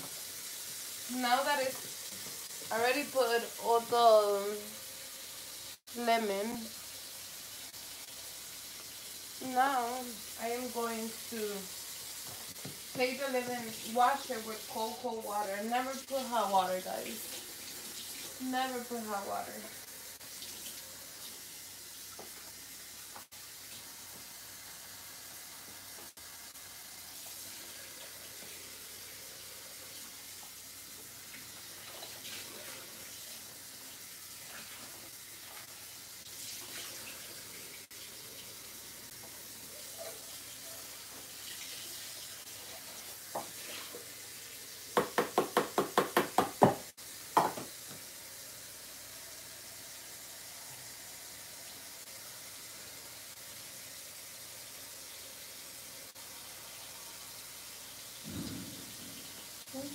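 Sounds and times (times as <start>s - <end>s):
water running from faucet: 0.0s - 59.9s.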